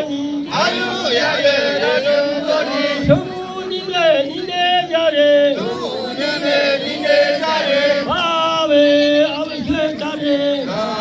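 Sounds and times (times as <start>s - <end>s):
men chanting into microphones: 0.0s - 11.0s.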